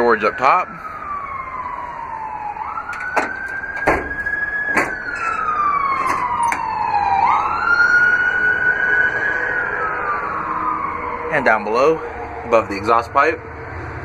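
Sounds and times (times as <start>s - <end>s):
emergency siren wailing: 0.0s - 14.0s
metal compartment doors clicking: 2.8s - 6.7s.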